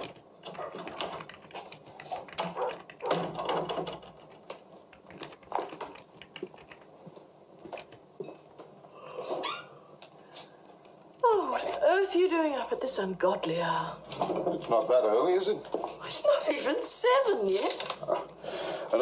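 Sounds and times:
footsteps: 15.5s - 16.1s.

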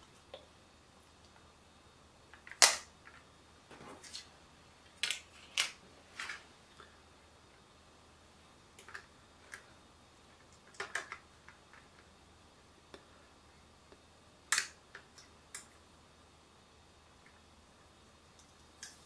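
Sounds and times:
plastic film snapping: 2.4s - 2.9s.

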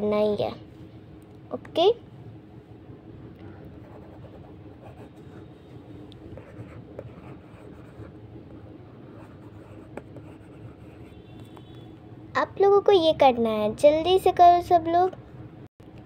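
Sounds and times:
stylus scratching on screen: 3.6s - 8.2s, 9.0s - 11.9s.

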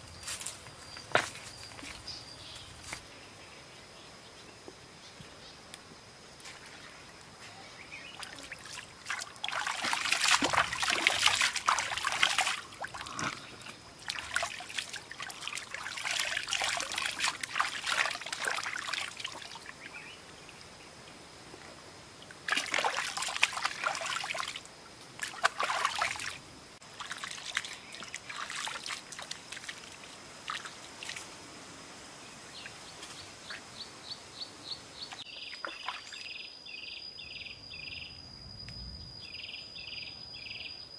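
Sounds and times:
high insect whine: 0.0s - 40.9s
water splashing and trickling: 8.1s - 20.8s, 22.1s - 31.4s, 35.1s - 36.3s
chirps and pulsing call: 32.5s - 38.2s, 39.0s - 40.9s.

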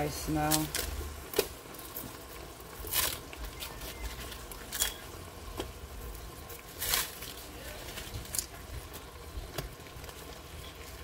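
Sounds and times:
onions sizzling in a pan: 0.0s - 11.0s
paper rustling and crinkling: 2.8s - 5.7s, 6.5s - 11.0s.

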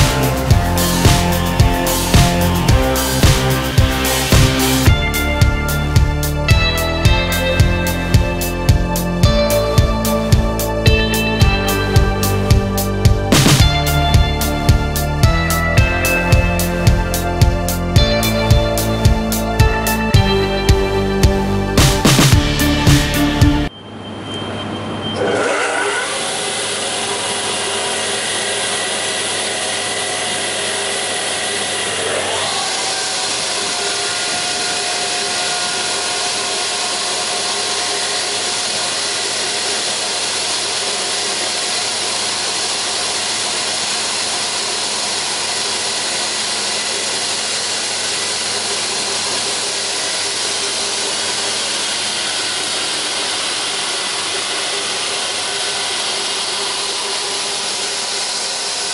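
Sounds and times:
machine running mechanical noise: 23.1s - 58.9s
electric motor whine: 25.2s - 58.9s.

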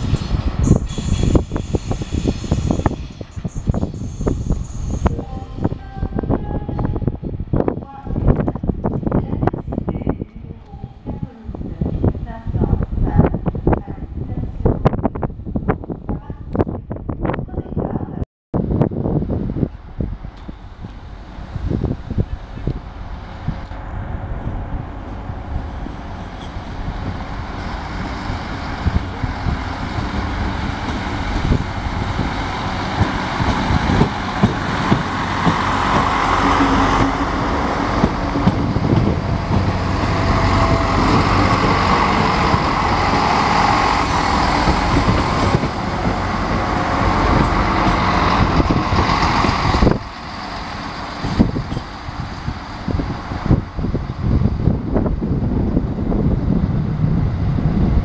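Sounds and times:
diesel train engine passing: 0.0s - 15.9s, 18.6s - 58.0s.

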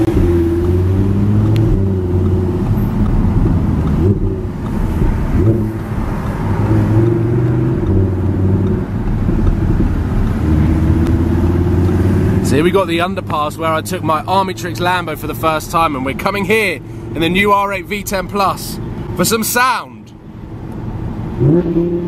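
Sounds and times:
car engine revving from inside cabin: 0.0s - 13.3s, 21.4s - 22.0s.

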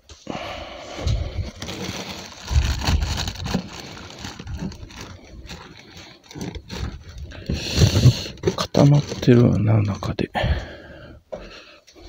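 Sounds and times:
plastic bag rustling and scraping: 0.8s - 10.1s.

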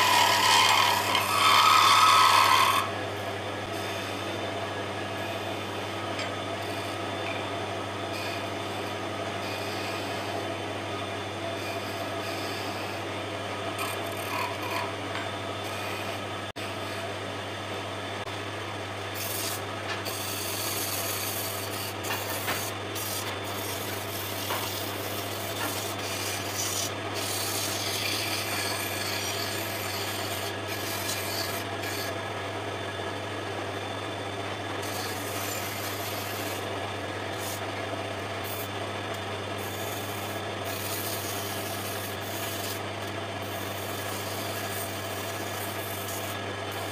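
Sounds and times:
sandpaper hissing on spinning wood: 0.0s - 2.9s, 19.2s - 32.1s, 39.6s - 42.8s, 43.4s - 46.9s
lathe motor humming: 0.0s - 17.0s, 19.2s - 46.9s.

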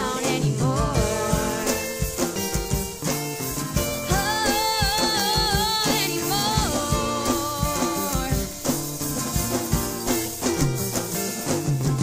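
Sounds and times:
pop song with singing: 0.0s - 8.8s.

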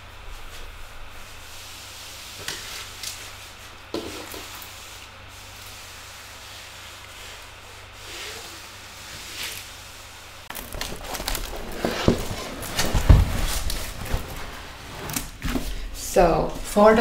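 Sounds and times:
room hiss: 0.0s - 10.5s
plastic film rustling and crinkling: 10.4s - 15.4s.

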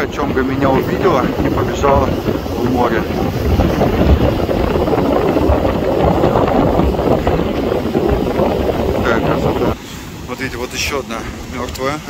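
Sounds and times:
surf breaking on shore: 0.0s - 12.0s
wind buffeting microphone: 0.0s - 12.0s.

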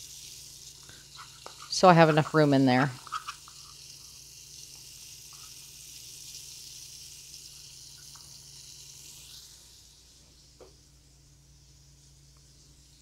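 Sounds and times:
meat sizzling in hot oil: 0.0s - 10.6s.

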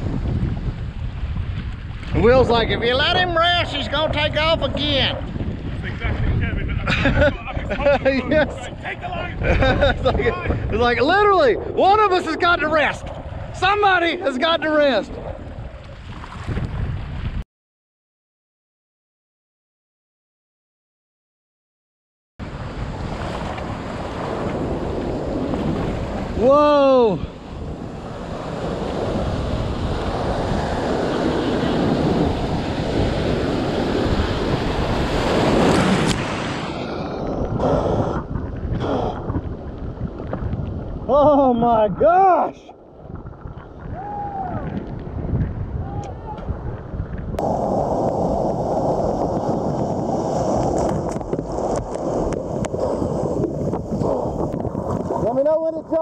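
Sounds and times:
surf rushing around kayak: 0.0s - 17.4s, 22.4s - 56.0s
wind buffeting microphone: 0.0s - 17.4s, 22.4s - 56.0s.

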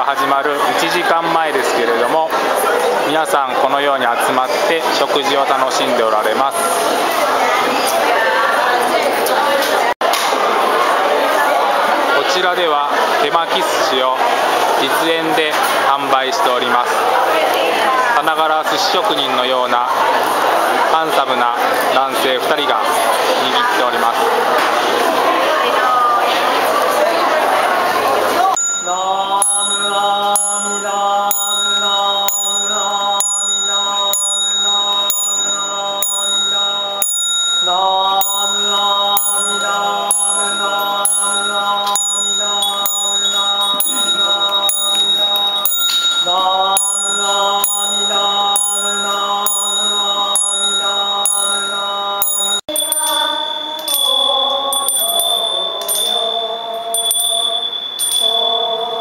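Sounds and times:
group singing a hymn: 24.3s - 59.0s
handbells ringing: 28.5s - 59.0s.

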